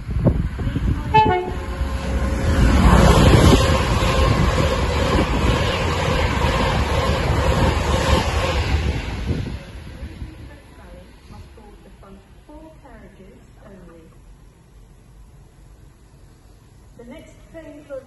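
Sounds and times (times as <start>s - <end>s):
train passing at speed: 0.0s - 13.6s
two-tone train horn: 0.9s - 1.9s.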